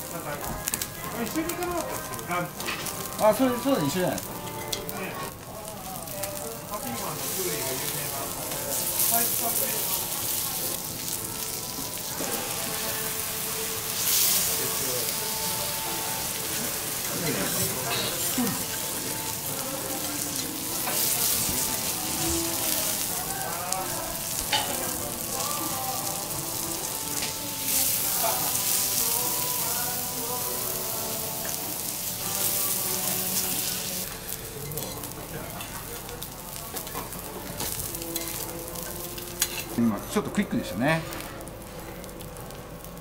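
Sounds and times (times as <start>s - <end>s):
beef sizzling on a griddle: 0.0s - 43.0s
metal spatulas clicking on griddle: 39.4s - 39.7s.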